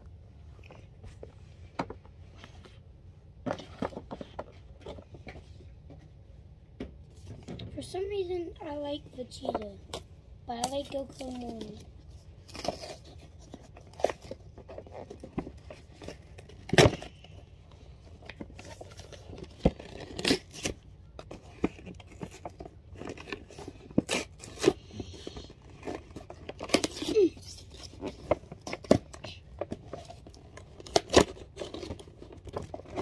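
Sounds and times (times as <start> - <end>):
cardboard tearing: 12.4 - 17.1, 18.3 - 33.0.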